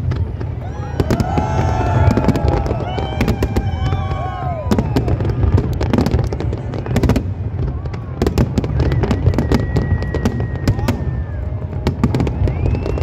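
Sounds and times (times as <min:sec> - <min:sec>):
firework whistle: 0:00.0 - 0:05.3, 0:08.3 - 0:13.0
fireworks bangs and crackles: 0:00.0 - 0:13.0.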